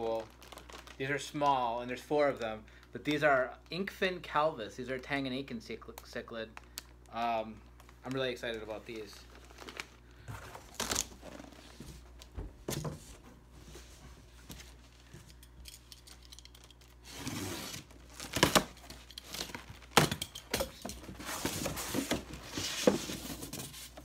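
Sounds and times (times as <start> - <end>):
plastic packing crinkling: 0.0 - 3.1, 5.8 - 12.4, 14.4 - 20.2
cardboard boxes rustling: 9.4 - 15.1, 20.8 - 24.0.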